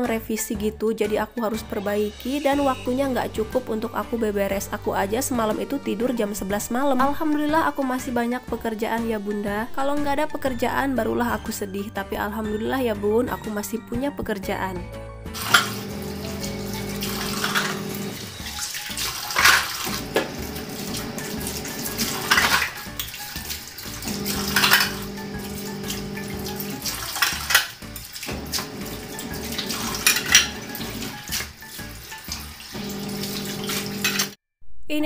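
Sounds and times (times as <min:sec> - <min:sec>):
dishes clattering: 0:15.4 - 0:15.9, 0:19.2 - 0:21.2, 0:21.9 - 0:22.8, 0:24.2 - 0:25.6, 0:28.6 - 0:31.2
tap running into sink: 0:15.4 - 0:31.5, 0:32.2 - 0:34.4
water splashing off plates: 0:15.4 - 0:34.4.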